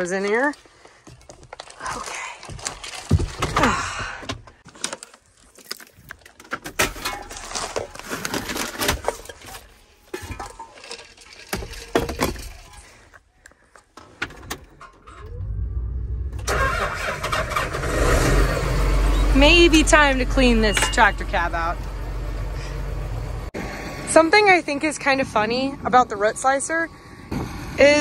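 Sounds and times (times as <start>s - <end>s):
keys and loose items rattling: 4.7s - 13.2s
diesel engine starting and running: 14.8s - 27.8s.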